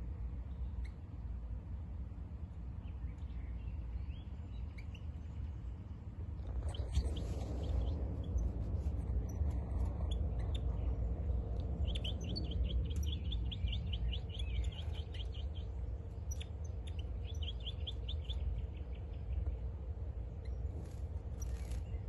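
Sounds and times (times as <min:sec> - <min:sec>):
low rumble: 0:06.2 - 0:22.0
goldfinch singing: 0:09.2 - 0:19.2.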